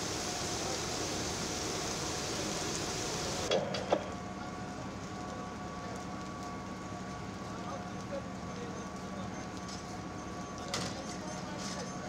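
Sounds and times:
fire hose stream hissing: 0.0 - 3.6.

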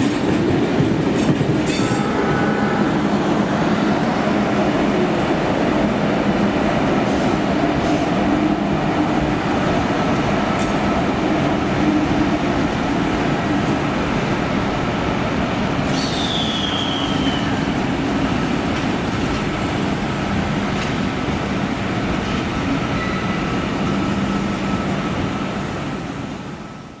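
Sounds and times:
train rumbling on tracks: 0.0 - 27.0
high train squeal: 1.6 - 4.4, 15.8 - 18.0, 22.7 - 27.0.

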